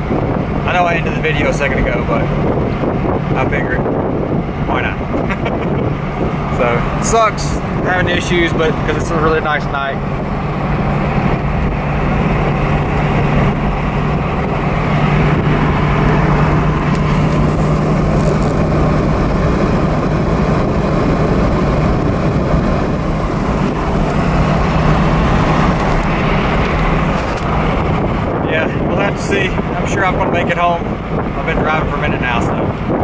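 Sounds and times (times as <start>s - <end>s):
car engine droning: 0.0s - 33.0s
road and wind noise: 0.0s - 33.0s.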